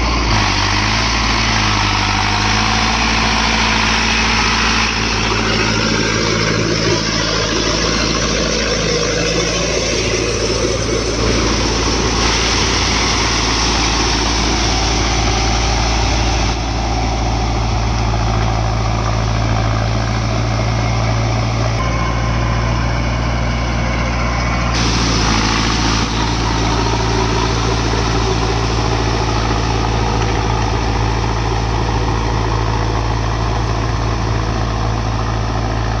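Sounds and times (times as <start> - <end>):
tractor diesel engine under load: 0.0 - 36.0.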